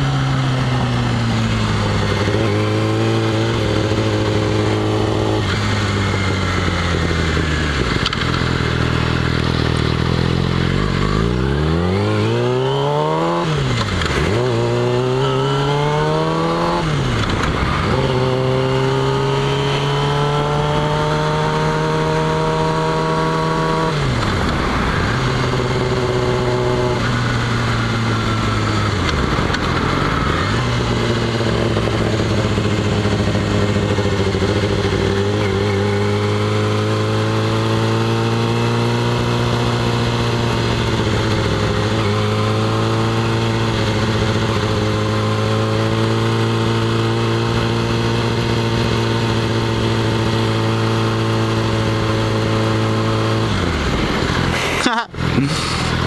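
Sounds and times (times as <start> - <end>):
motorcycle engine revving: 0.0 - 56.0
wind noise: 15.5 - 32.7.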